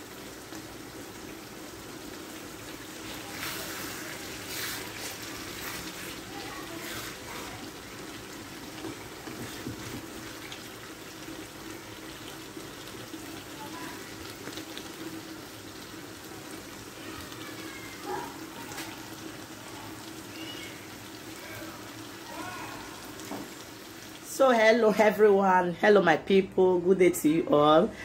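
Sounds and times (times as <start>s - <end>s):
wooden spoon stirring sauce: 8.8s - 11.0s.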